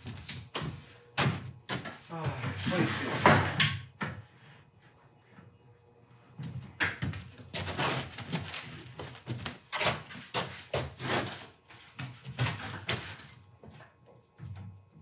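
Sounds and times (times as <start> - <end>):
foam sheets thumping and scraping: 7.5 - 13.3.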